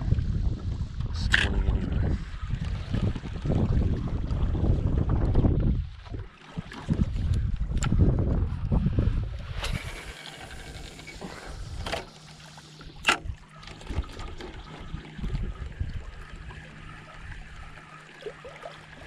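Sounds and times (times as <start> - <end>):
wind buffeting microphone: 0.0 - 12.0, 13.2 - 17.8
small waves lapping on rocks: 9.6 - 15.3
sharp clicks or splashes: 12.8 - 15.4.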